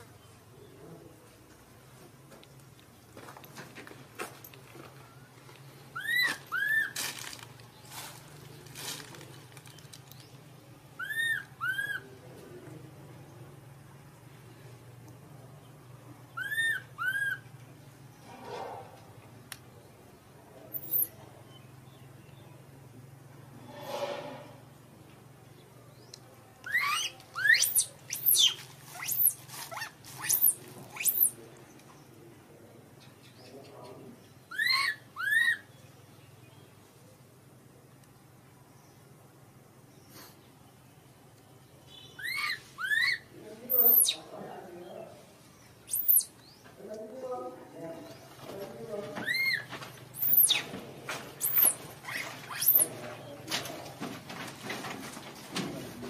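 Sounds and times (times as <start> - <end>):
infant monkey crying: 6.0 - 7.0, 11.0 - 12.0, 16.4 - 17.4, 34.5 - 35.7, 42.2 - 44.2
infant monkey squealing: 6.0 - 7.0, 11.0 - 12.0, 16.4 - 17.4, 20.8 - 21.1, 26.7 - 31.4, 34.5 - 35.7, 42.2 - 44.2, 45.9 - 46.3, 49.2 - 50.7, 51.4 - 52.9.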